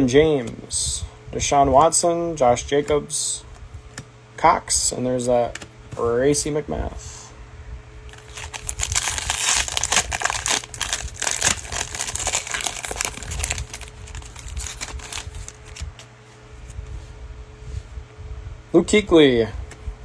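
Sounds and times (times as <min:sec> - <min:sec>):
foil wrapper tearing and crinkling: 0:08.1 - 0:15.9.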